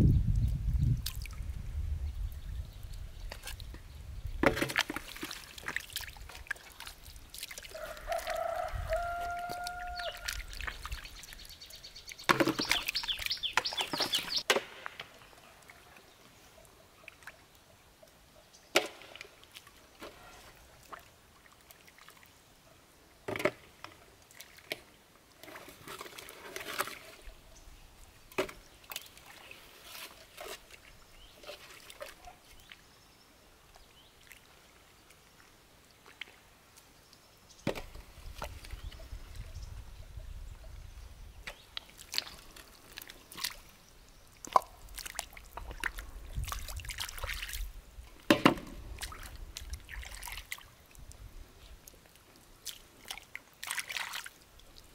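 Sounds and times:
wet mud squelching and sloshing: 4.4s - 14.9s, 28.3s - 32.8s, 41.5s - 54.9s.

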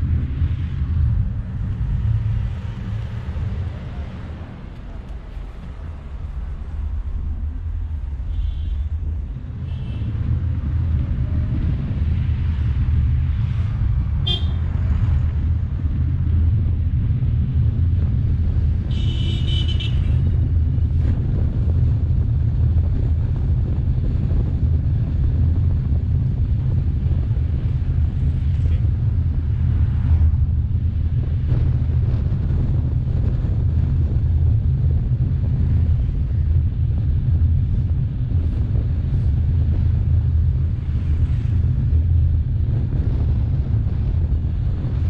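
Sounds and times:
road rumble: 0.0s - 45.0s
vehicle horns honking: 8.3s - 8.9s, 9.6s - 10.1s, 14.2s - 14.7s, 18.9s - 20.2s.

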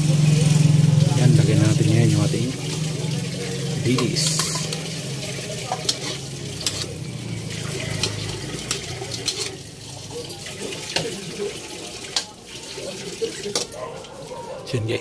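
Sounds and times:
food sizzling: 0.0s - 15.0s
metal spoon scraping wok: 4.0s - 10.0s.

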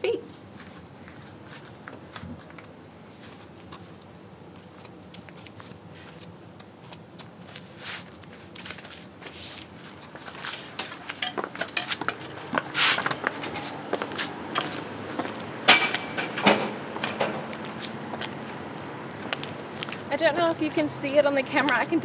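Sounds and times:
shoe scuffs: 0.4s - 4.0s, 4.6s - 10.8s, 11.9s - 15.3s.

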